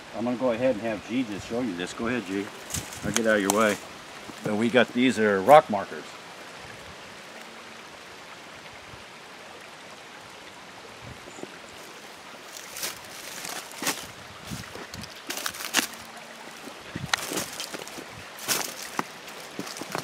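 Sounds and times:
creek rushing: 0.0 - 20.0
brief rustles and knocks: 2.7 - 3.7.

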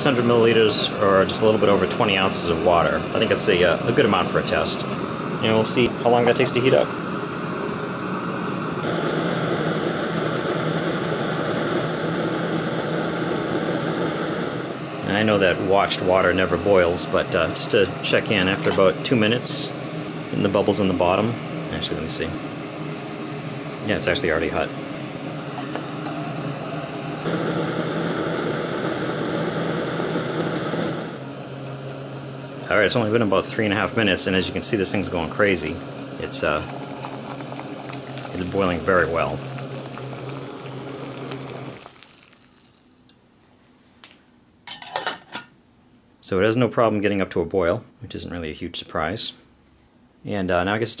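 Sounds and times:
gas camping stove hissing: 0.0 - 42.8.

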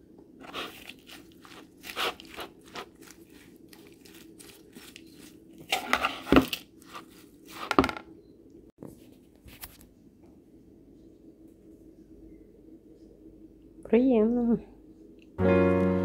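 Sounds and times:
spoon tossing lettuce in bowl: 0.4 - 7.7.

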